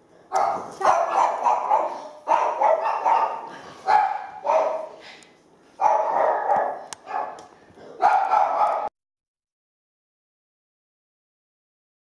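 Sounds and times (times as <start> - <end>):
dog barking quick yaps: 0.3 - 5.0, 5.8 - 7.4, 8.0 - 8.9.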